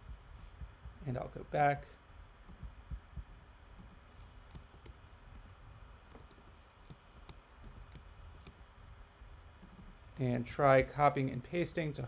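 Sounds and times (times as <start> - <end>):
quiet room hum: 0.0 - 12.0
keyboard and mouse clicks: 2.5 - 8.6.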